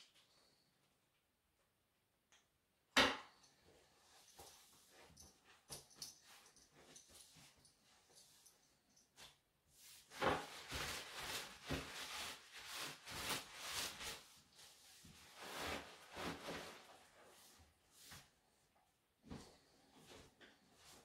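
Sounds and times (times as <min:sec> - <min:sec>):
cloth rag rubbing plastic sheeting: 0:09.7 - 0:18.4.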